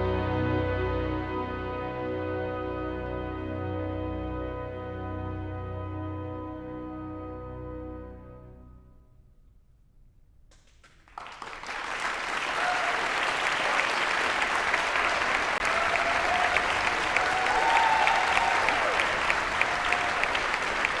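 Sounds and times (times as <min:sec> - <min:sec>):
audience applauding: 0:10.5 - 0:21.0.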